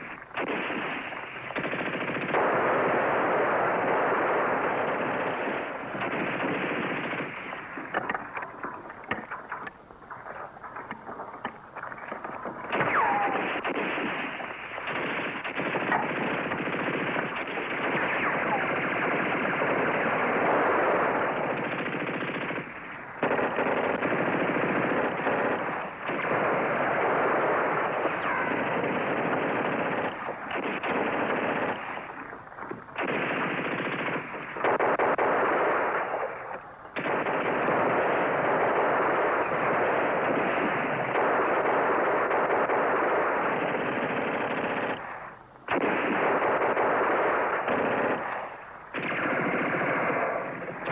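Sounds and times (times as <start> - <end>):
single gunshots: 0.0 - 8.3, 10.4 - 32.2
automatic gunfire: 0.0 - 50.9.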